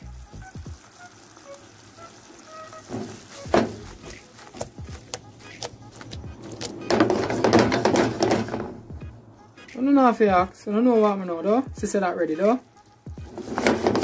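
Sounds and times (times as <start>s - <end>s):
sauce sizzling in a pan: 0.0s - 6.1s, 11.4s - 14.0s
faint background music: 0.0s - 14.0s.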